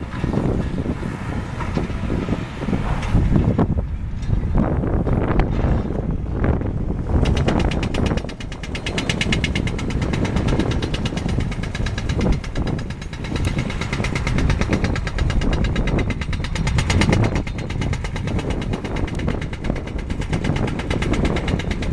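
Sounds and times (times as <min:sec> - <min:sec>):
diesel engine running: 0:00.0 - 0:21.9
hydraulic breaker hammering concrete: 0:07.1 - 0:21.9.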